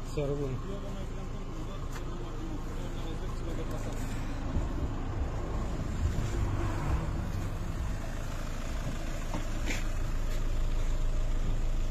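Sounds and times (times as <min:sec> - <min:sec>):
car engine idling: 0:00.0 - 0:11.9.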